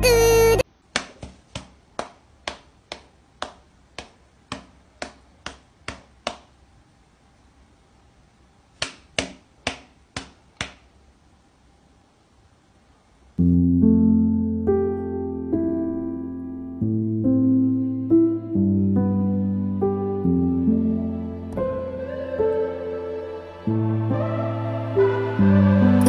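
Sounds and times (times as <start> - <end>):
hand and paw slapping: 0.9 - 6.6, 8.7 - 11.0.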